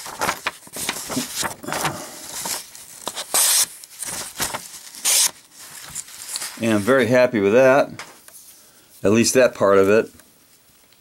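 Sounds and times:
paper rustling: 0.0s - 8.6s
knife slicing paper: 3.1s - 5.4s.

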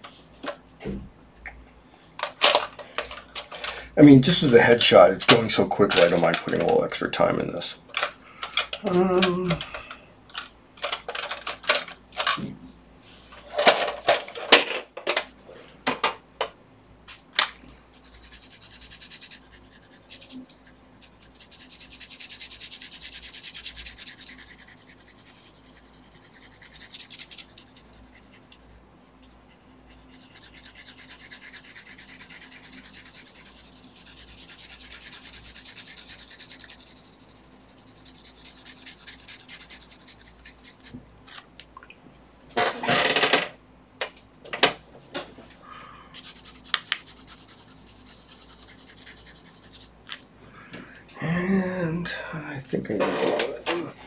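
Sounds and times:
colored pencil scratching on paper: 17.8s - 41.0s, 46.2s - 49.9s.

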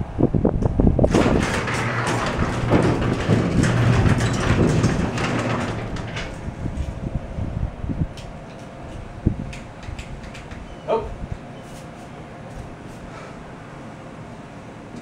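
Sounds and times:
garage door opener motor humming: 1.0s - 7.3s.

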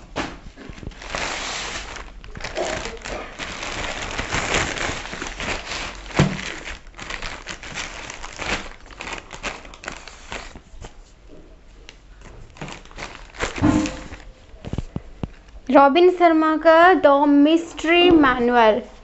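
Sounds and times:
plastic packaging crinkling: 0.0s - 11.1s, 12.0s - 15.6s.

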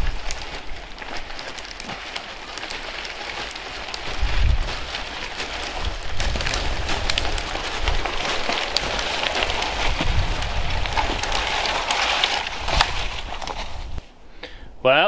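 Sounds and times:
steady hiss with crackles: 0.0s - 15.0s
low rumbling on microphone: 3.9s - 14.0s.

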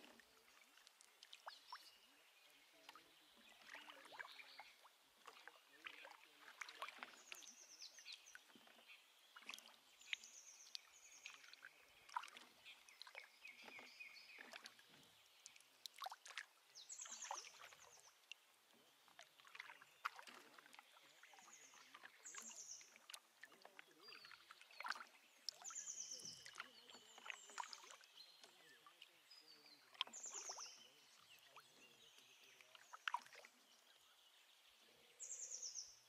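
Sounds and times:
water dripping: 0.1s - 1.9s.

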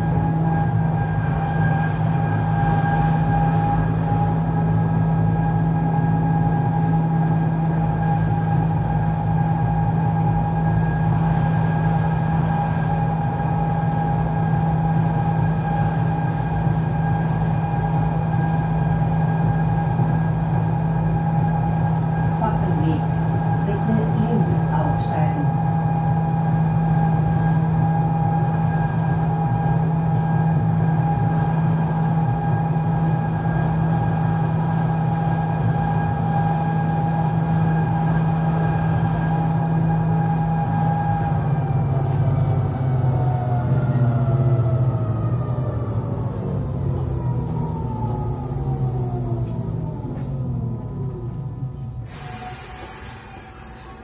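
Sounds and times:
constant drive whine: 0.0s - 42.2s
railcar rumbling drone: 0.0s - 54.0s.

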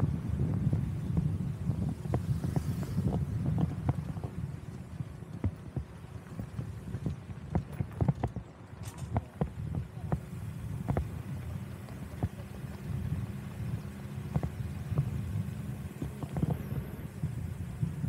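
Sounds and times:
vehicle rumbling on rough road: 0.0s - 18.0s.

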